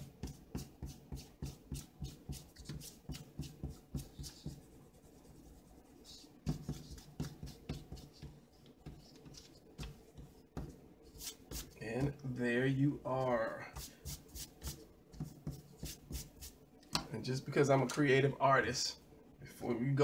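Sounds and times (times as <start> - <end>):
eraser scrubbing on paper: 0.0 - 10.4, 11.1 - 11.8, 13.7 - 16.6.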